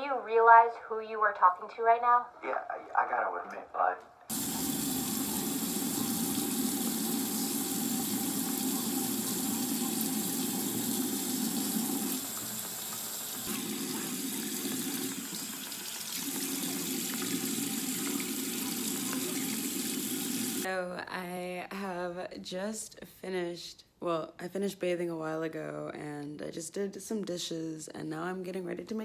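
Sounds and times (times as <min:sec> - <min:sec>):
tap water running into sink: 0:04.3 - 0:20.7.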